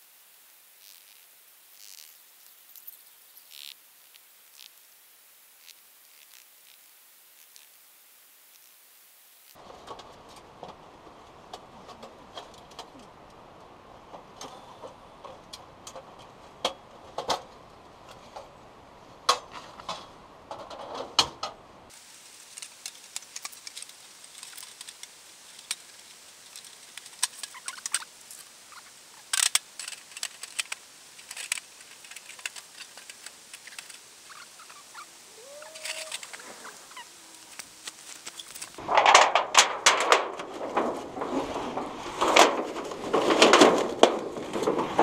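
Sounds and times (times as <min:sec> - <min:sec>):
metal panels clinking and clacking: 0:38.2 - 0:45.0.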